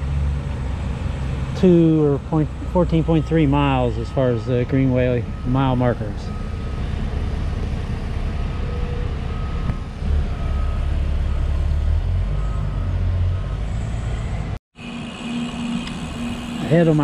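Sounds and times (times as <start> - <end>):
faint backup alarm beeping: 2.6 - 7.1, 8.3 - 11.6.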